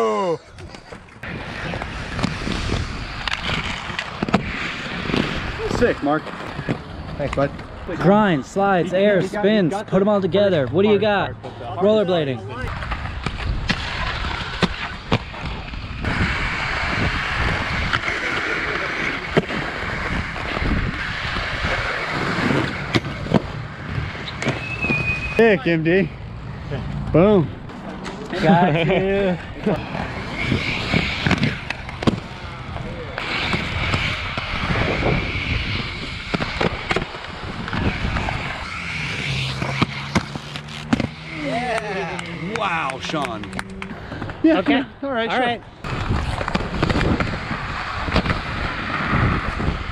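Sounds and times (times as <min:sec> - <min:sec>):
inline skates rolling on concrete: 0:00.2 - 0:11.6, 0:12.5 - 0:26.1, 0:27.2 - 0:49.9
wind on microphone: 0:00.5 - 0:06.7, 0:12.7 - 0:25.4, 0:29.5 - 0:40.3, 0:45.8 - 0:49.9
skates clacking on ground: 0:39.6 - 0:44.6.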